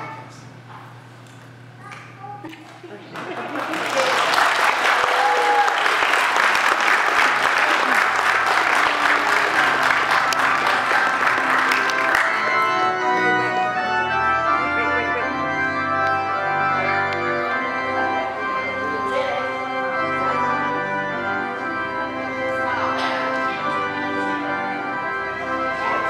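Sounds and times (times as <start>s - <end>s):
applause: 3.1s - 12.5s
organ playing held chords: 3.1s - 26.0s.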